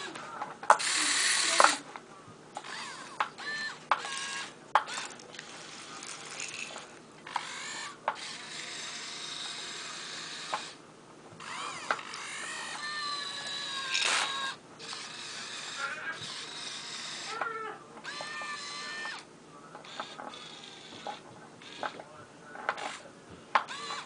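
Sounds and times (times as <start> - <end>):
electric motors whining: 0.0 - 1.8, 2.6 - 10.8, 11.4 - 22.0, 23.6 - 24.0.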